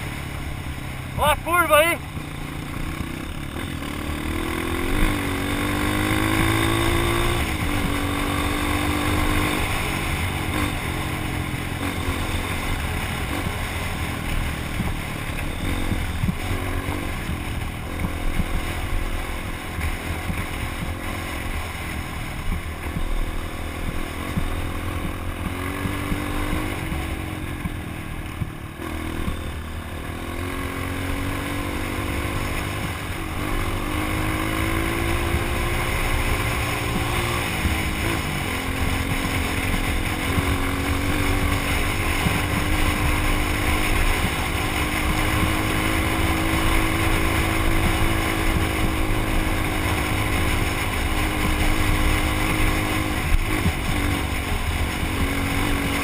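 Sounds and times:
dirt bike engine running: 0.0s - 56.0s.

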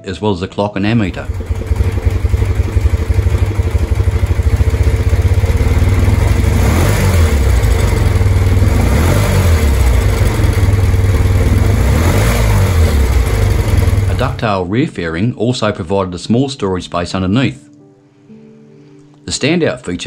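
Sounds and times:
motorcycle engine idling and revving: 1.1s - 14.4s.

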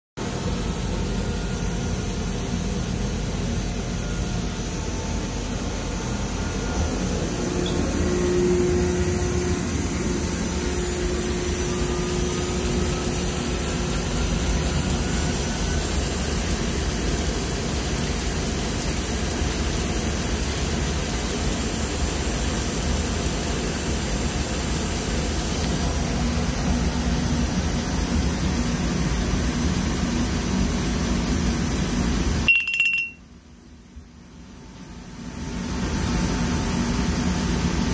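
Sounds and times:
washing machine spinning: 0.2s - 33.2s, 34.1s - 37.9s
faint rising whine: 0.4s - 14.8s.

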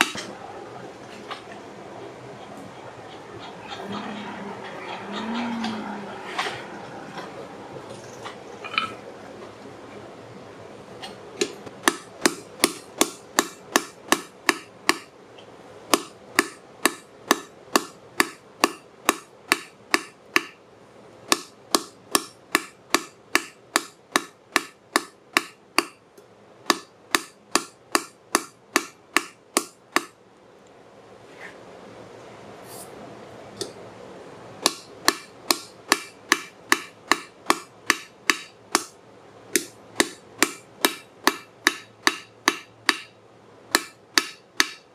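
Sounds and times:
hammer striking metal on anvil: 11.8s - 15.1s, 15.9s - 20.6s, 21.3s - 26.0s, 26.7s - 30.2s, 34.6s - 39.0s, 39.6s - 44.9s.

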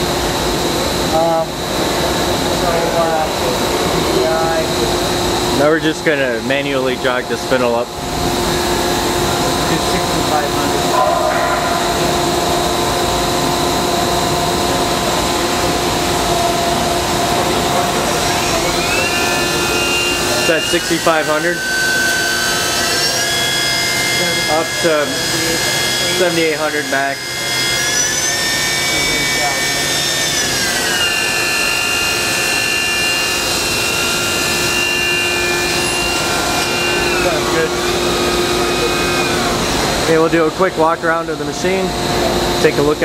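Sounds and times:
higher whine: 0.0s - 28.3s
machine spindle whine: 0.0s - 43.0s.

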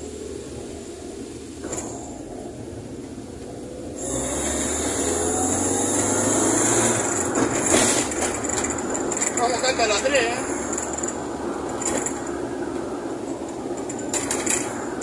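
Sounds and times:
car engine revving from inside: 4.0s - 7.3s.

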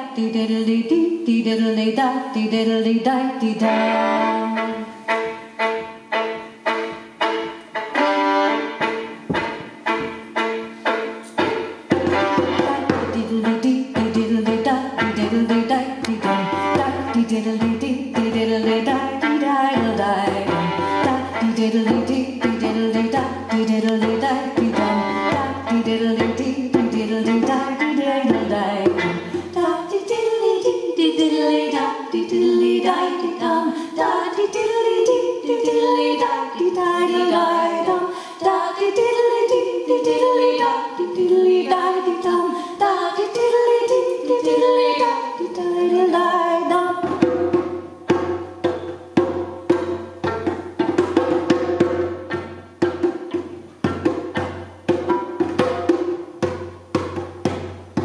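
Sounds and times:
woman singing folk melody: 0.0s - 5.2s, 11.4s - 48.2s
fiddle: 3.6s - 26.4s.

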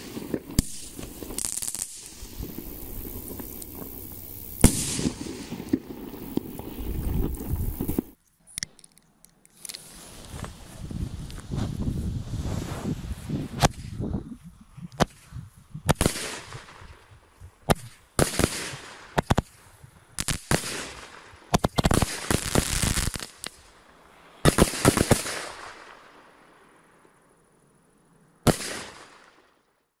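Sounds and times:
fireworks bangs and cracks: 0.0s - 8.2s, 15.9s - 19.6s, 20.2s - 23.7s, 24.4s - 26.1s.

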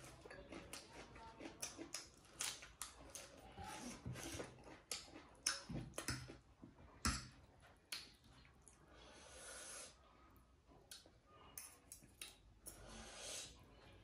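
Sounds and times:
chewing crisp lettuce: 0.0s - 6.4s.

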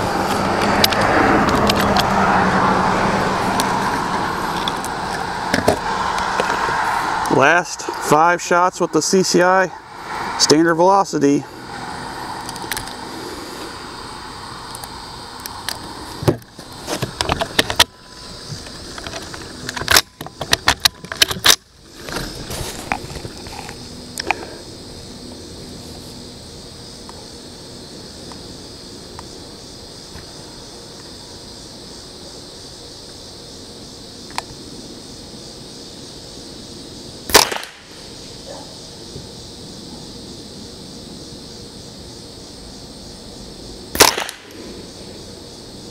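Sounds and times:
rifle shot: 37.3s - 37.9s, 43.9s - 44.6s.

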